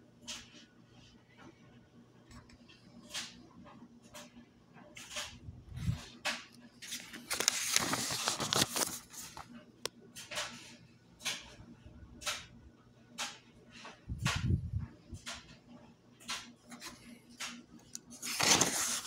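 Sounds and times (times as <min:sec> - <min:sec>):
soft paper handling rustles: 0:05.0 - 0:09.6, 0:16.7 - 0:19.0
book page turning: 0:06.8 - 0:09.5, 0:18.0 - 0:19.0.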